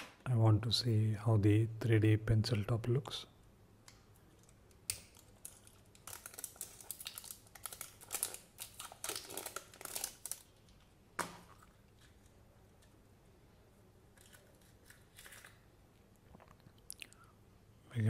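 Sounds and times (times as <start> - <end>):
plastic seal crinkling and tearing: 4.4 - 10.9, 14.2 - 15.6.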